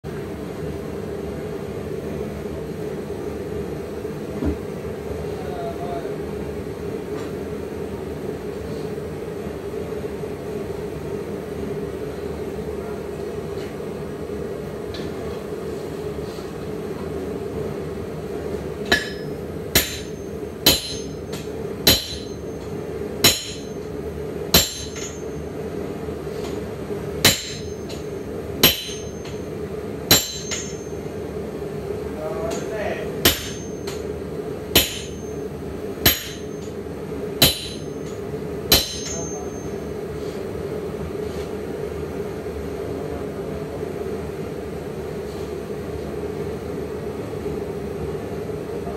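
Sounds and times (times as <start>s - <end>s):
sledgehammer striking hot steel: 18.8s - 23.9s, 24.5s - 25.4s, 27.2s - 29.5s, 30.1s - 31.1s, 32.5s - 34.1s, 34.7s - 35.4s, 36.0s - 36.8s, 37.4s - 39.8s
metallic ring of anvil: 18.9s - 23.8s, 24.6s - 25.4s, 27.3s - 29.4s, 30.1s - 31.0s, 33.3s - 34.0s, 34.8s - 35.4s, 36.1s - 36.8s, 37.4s - 38.1s, 38.7s - 39.9s.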